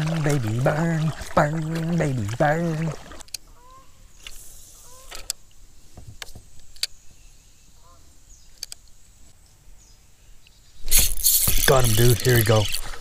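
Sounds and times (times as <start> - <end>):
fishing reel and rod clicks: 10.9 - 13.0.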